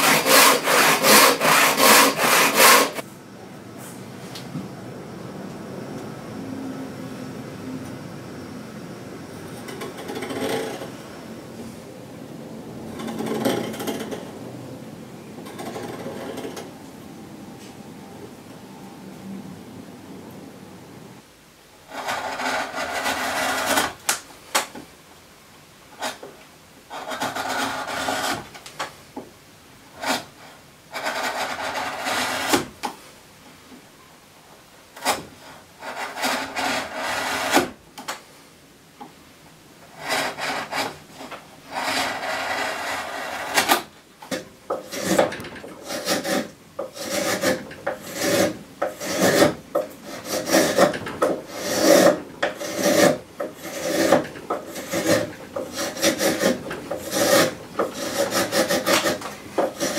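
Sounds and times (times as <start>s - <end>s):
chisel paring wood: 0.0s - 3.0s, 13.0s - 14.3s, 31.0s - 33.0s, 35.0s - 38.2s, 41.8s - 59.9s
spokeshave shaving wood: 0.0s - 3.0s, 21.9s - 24.2s, 26.9s - 28.8s, 30.0s - 32.7s, 35.0s - 37.7s, 39.9s - 59.9s.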